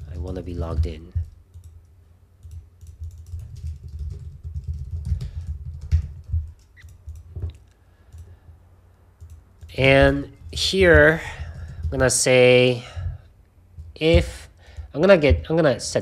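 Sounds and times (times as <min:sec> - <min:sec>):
typing on keyboard: 0:00.0 - 0:01.8, 0:02.4 - 0:08.3, 0:09.2 - 0:12.2.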